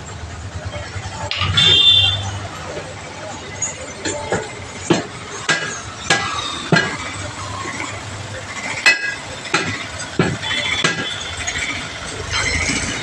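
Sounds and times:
hammer striking tyre and wheel rim: 4.0s - 7.3s, 8.8s - 11.7s.

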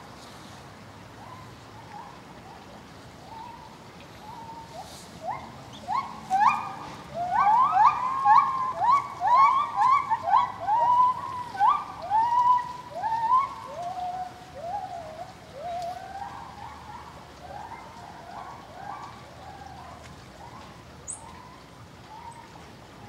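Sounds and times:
monkeys calling: 5.2s - 19.1s.

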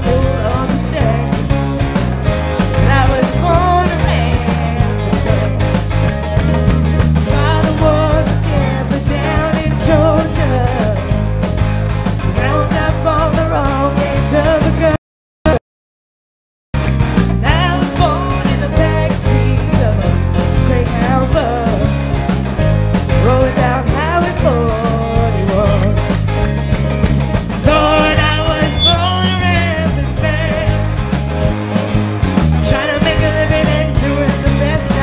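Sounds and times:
woman singing lead: 0.0s - 1.6s, 2.7s - 5.7s, 7.3s - 11.2s, 12.2s - 15.6s, 17.4s - 22.2s, 23.2s - 26.0s, 27.6s - 30.9s, 32.6s - 35.0s
rock band playing: 0.0s - 15.6s, 16.8s - 35.0s.

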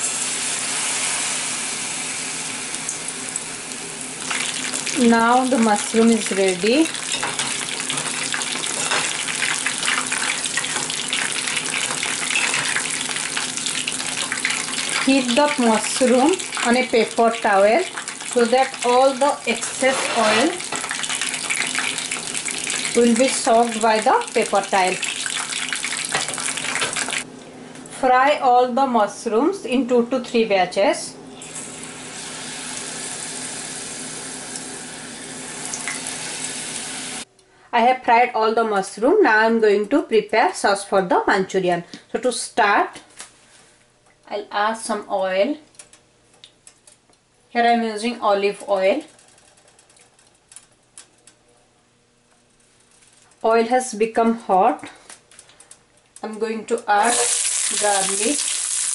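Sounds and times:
deep-frying crackling sizzle: 0.0s - 27.3s, 31.4s - 37.3s, 48.7s - 51.4s, 52.4s - 53.4s, 55.1s - 58.9s
faint crackles: 49.0s - 51.4s.

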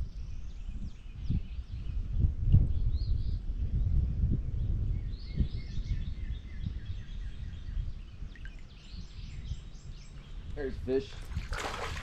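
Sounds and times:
wind buffeting microphone: 0.0s - 12.0s
birds chirping and singing: 4.6s - 12.0s.

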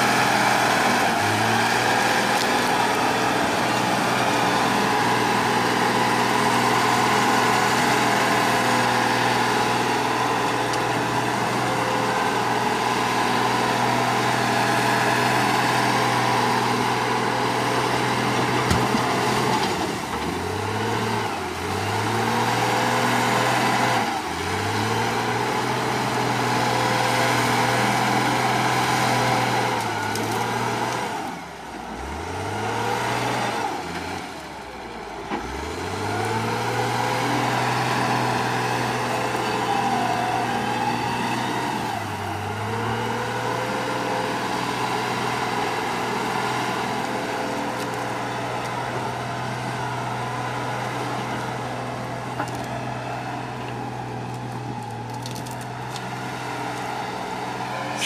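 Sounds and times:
diesel engine working hard: 0.0s - 58.0s.

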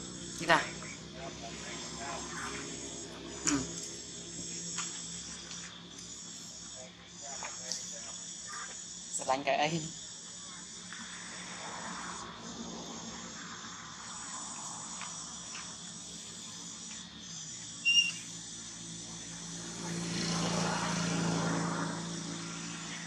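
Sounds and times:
insects chirring: 0.0s - 23.0s
short high chirp: 17.8s - 18.3s.

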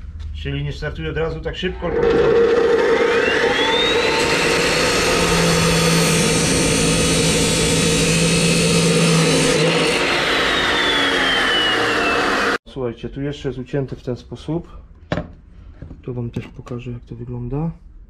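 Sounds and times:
metal chop saw whining: 1.8s - 12.6s
saw disc cutting steel tube: 1.9s - 12.6s.

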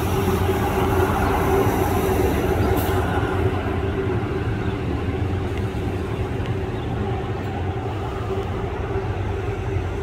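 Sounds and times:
high hiss: 0.0s - 3.9s
jet engines rumbling at low power: 0.0s - 10.0s.

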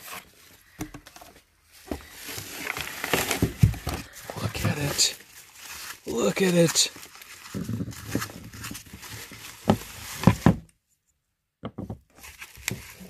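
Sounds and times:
bubble wrap crinkling: 1.7s - 10.6s, 12.1s - 13.0s.

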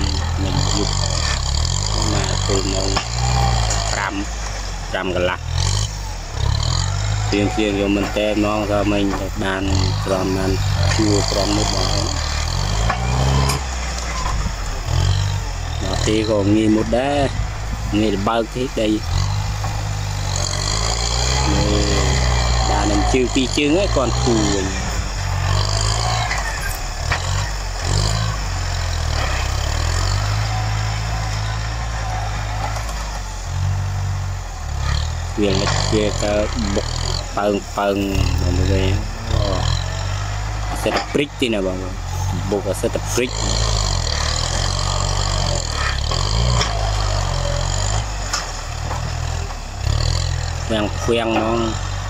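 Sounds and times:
blade pushing through soil: 0.0s - 34.0s
tractor engine under load: 0.0s - 52.0s.

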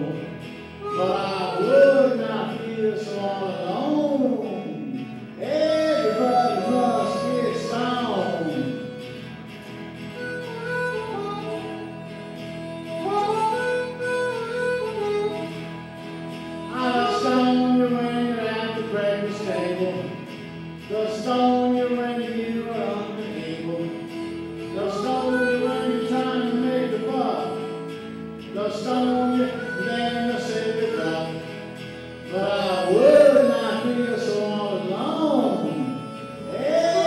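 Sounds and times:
man singing: 0.0s - 9.1s, 16.6s - 37.0s
electric guitar through amplifier: 0.0s - 37.0s.

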